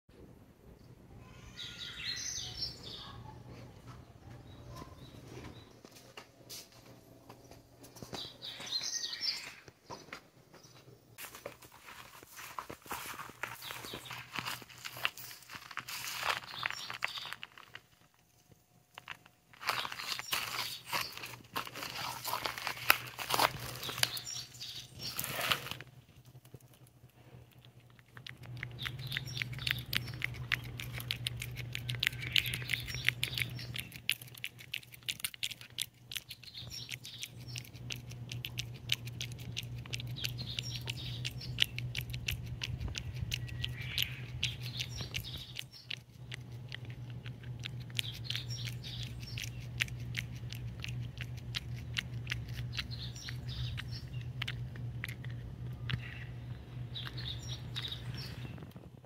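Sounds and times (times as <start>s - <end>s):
steady low hum: 9.7s - 59.0s
cat licking: 26.4s - 56.1s.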